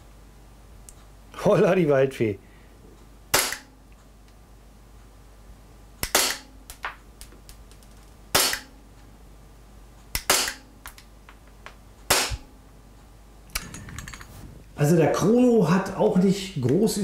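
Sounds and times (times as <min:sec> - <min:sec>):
airsoft pistol shots: 0:03.3 - 0:03.7, 0:06.0 - 0:06.6, 0:08.3 - 0:08.7, 0:10.2 - 0:10.7, 0:12.1 - 0:12.5.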